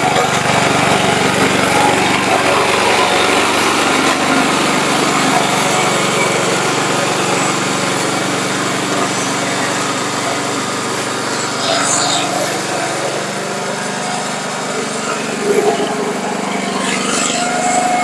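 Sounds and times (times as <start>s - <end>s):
mower engine running: 0.0s - 18.0s.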